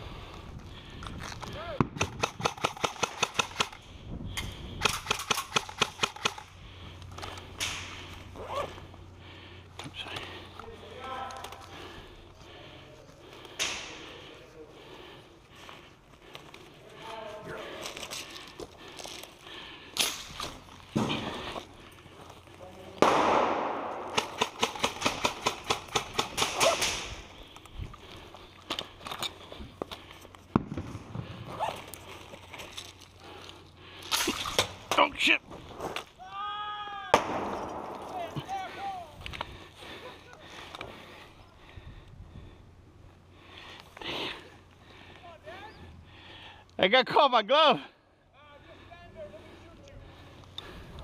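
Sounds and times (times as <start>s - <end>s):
airsoft rifle firing: 1.8s - 3.8s, 23.0s - 27.2s, 37.1s - 38.4s.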